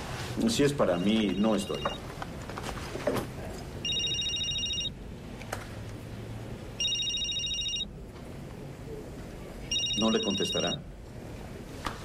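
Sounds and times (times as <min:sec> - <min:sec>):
mobile phone ringing: 0:00.8 - 0:02.1, 0:03.8 - 0:05.0, 0:06.8 - 0:07.9, 0:09.7 - 0:10.8.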